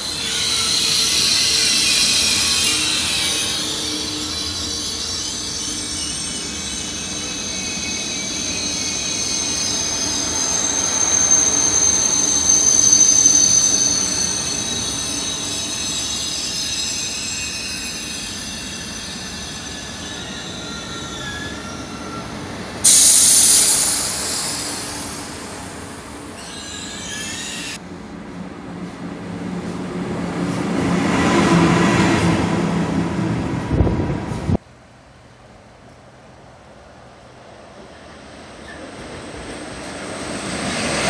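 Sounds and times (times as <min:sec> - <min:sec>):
train wheels squealing: 0:00.0 - 0:27.8, 0:37.9 - 0:41.0
loud hiss: 0:22.8 - 0:27.8.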